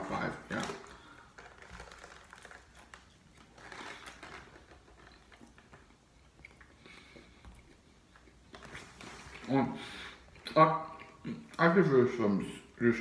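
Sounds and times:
bread crunching: 0:00.1 - 0:09.6
faint chewing: 0:00.7 - 0:11.7.

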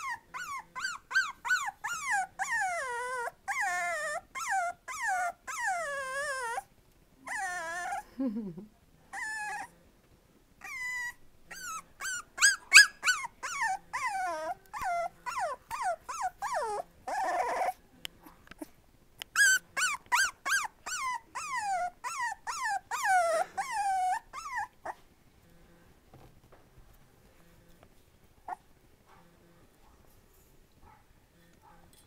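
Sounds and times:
puppy whining and crying: 0:00.0 - 0:08.2, 0:09.1 - 0:09.8, 0:10.6 - 0:17.8, 0:18.6 - 0:25.0, 0:28.4 - 0:28.7.

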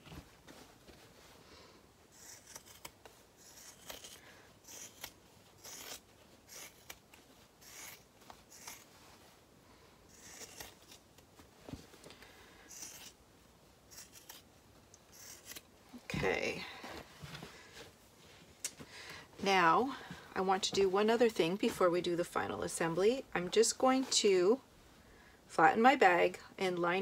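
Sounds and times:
fabric shears snipping: 0:02.1 - 0:08.9, 0:10.1 - 0:11.1, 0:13.9 - 0:15.7.

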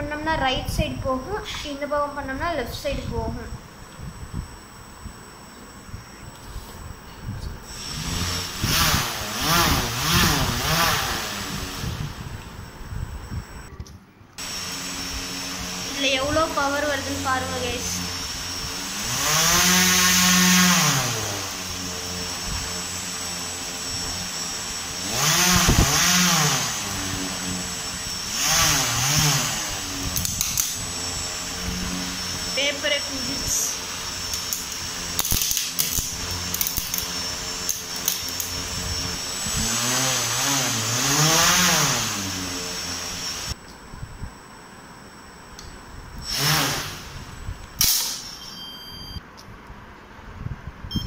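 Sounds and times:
toy plane propeller whine: 0:16.0 - 0:43.6.

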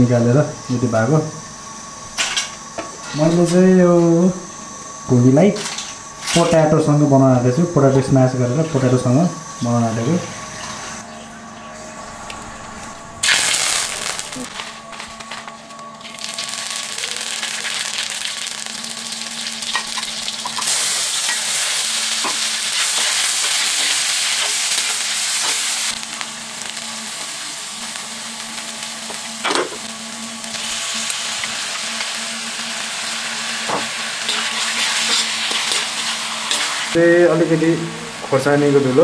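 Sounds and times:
onions sizzling in hot oil: 0:13.2 - 0:14.6, 0:16.0 - 0:39.0.

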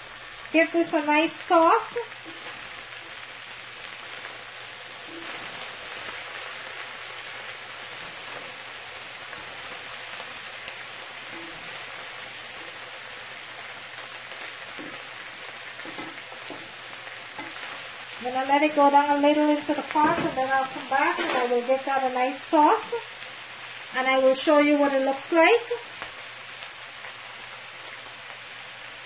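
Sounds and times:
food sizzling in hot oil: 0:00.0 - 0:29.0.

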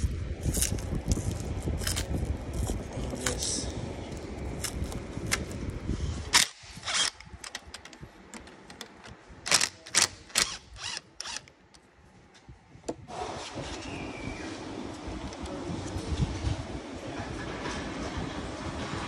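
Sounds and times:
low rumble: 0:00.0 - 0:07.8
tools and metal parts clicking: 0:06.3 - 0:11.8.

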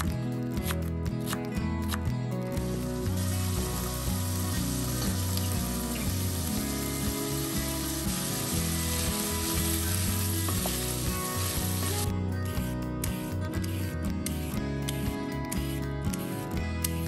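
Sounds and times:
background music: 0:00.0 - 0:17.0
vegetables sizzling in oil: 0:03.1 - 0:12.1.

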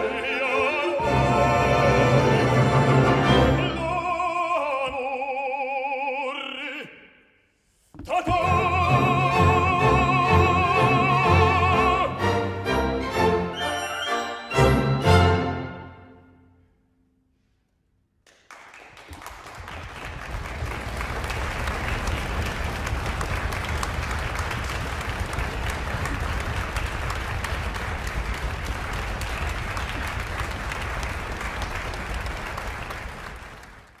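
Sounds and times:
crowd applause: 0:18.3 - 0:34.0.

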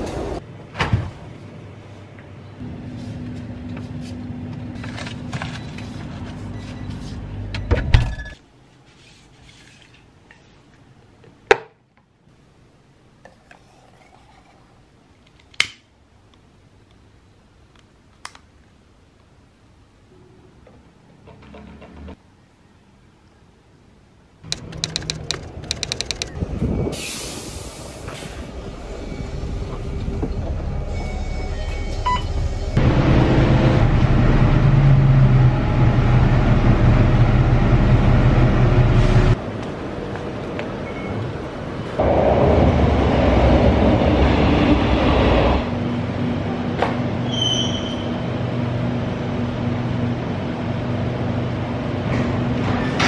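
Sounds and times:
train rumble: 0:00.0 - 0:00.4, 0:24.5 - 0:40.7, 0:41.4 - 0:46.8
sharp clicks: 0:24.5 - 0:26.4
train hiss: 0:26.9 - 0:30.2.

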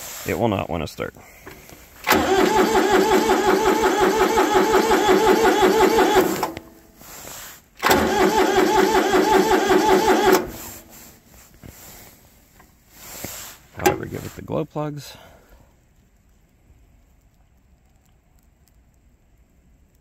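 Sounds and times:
diesel engine cranking: 0:01.4 - 0:12.0, 0:13.7 - 0:14.4.

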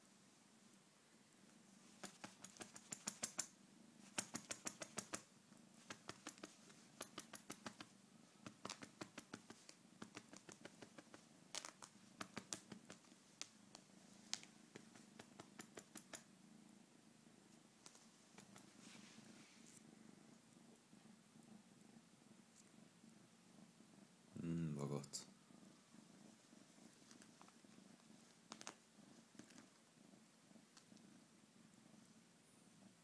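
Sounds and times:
kitten purring: 0:00.5 - 0:33.0
quick sharp clicks: 0:02.0 - 0:03.5, 0:04.1 - 0:05.2, 0:05.9 - 0:13.1, 0:14.3 - 0:16.2.

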